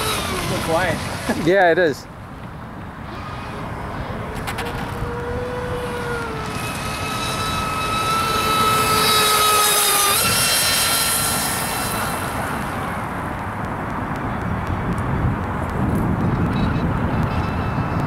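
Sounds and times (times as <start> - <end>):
speedboat motor whine: 0.0 - 1.5, 3.0 - 13.6, 16.5 - 18.0.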